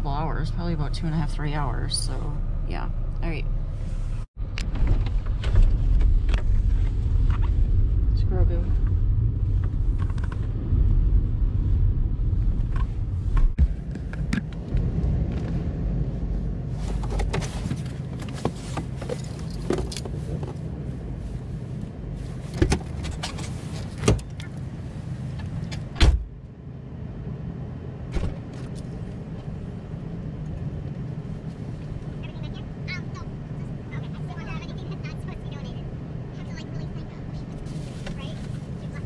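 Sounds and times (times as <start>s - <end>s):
car engine rumble: 0.0s - 39.0s
car doors clicking and thumping: 22.5s - 24.5s, 25.4s - 26.3s.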